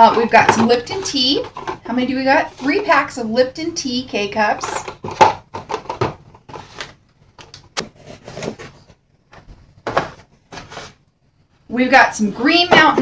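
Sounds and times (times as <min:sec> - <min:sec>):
cardboard scraping rustles: 0:07.8 - 0:09.0, 0:09.9 - 0:11.0.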